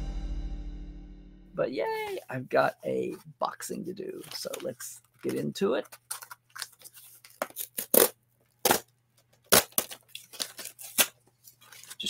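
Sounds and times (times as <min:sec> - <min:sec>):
cardboard tearing: 0:06.1 - 0:08.9, 0:09.5 - 0:12.0.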